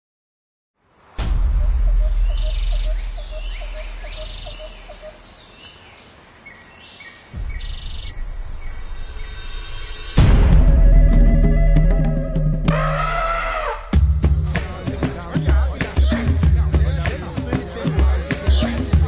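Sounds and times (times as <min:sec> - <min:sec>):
insects trilling: 0:00.9 - 0:10.2
low rumble: 0:01.2 - 0:04.9, 0:07.4 - 0:12.8
birds chirping: 0:01.4 - 0:10.2.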